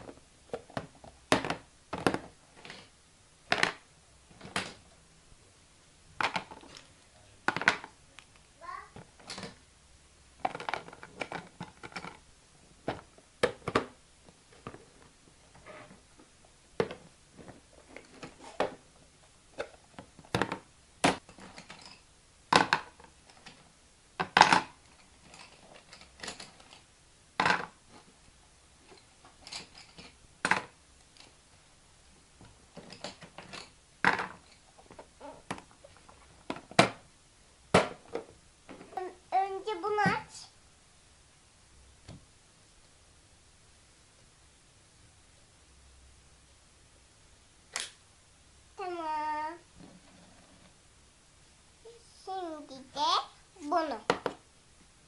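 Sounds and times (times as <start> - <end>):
plastic objects clattering into boxes: 0.0 - 2.9, 3.5 - 4.9, 6.2 - 8.0, 10.4 - 12.2, 12.8 - 15.1, 19.5 - 23.6, 24.2 - 26.8, 27.4 - 28.2, 28.8 - 31.4, 32.4 - 37.0, 37.7 - 39.0.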